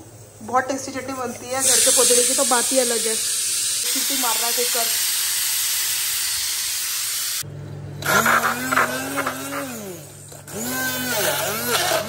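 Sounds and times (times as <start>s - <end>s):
pressure cooker steam hissing: 1.5s - 7.4s.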